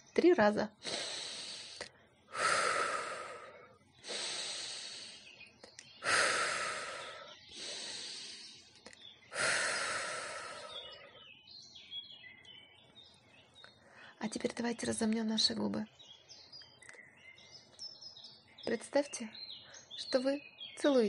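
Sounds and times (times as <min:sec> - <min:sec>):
woman breathing into microphone: 0:00.8 - 0:05.4, 0:06.0 - 0:08.7, 0:09.3 - 0:11.2.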